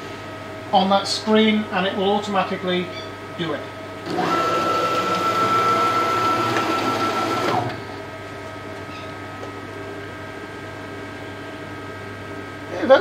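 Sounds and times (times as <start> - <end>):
machine axis drive whining: 4.0 - 8.0.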